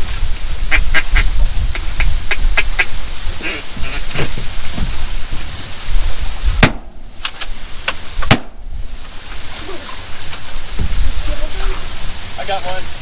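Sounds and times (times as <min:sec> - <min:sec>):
shotgun shots: 0:06.6 - 0:07.0, 0:08.3 - 0:08.6.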